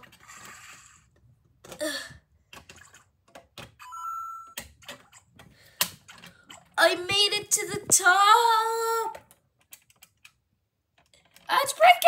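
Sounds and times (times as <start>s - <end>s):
toy beeping chime: 3.8s - 4.6s
plastic bricks clicking: 9.1s - 11.5s.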